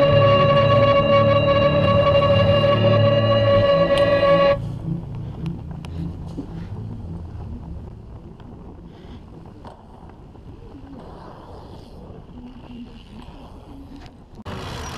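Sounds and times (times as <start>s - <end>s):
wood fire crackling: 4.7s - 13.7s.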